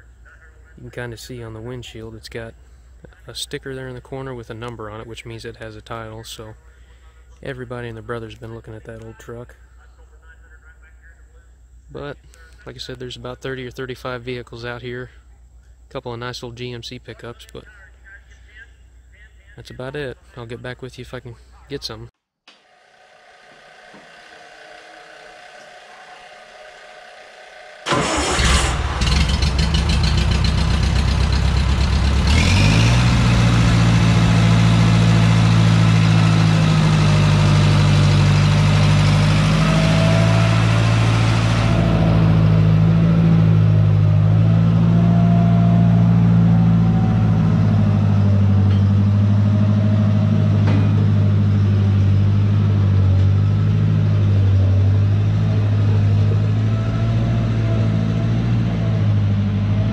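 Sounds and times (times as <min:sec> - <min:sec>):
starter motor cranking: 0:22.7 - 0:30.6
loader engine running: 0:22.7 - 0:59.9.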